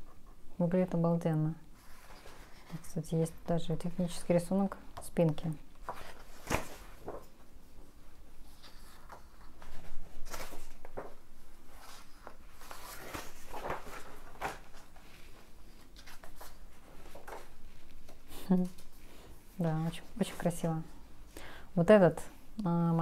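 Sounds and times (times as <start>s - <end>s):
magazine pages rustling: 5.8s - 7.5s, 8.4s - 18.9s.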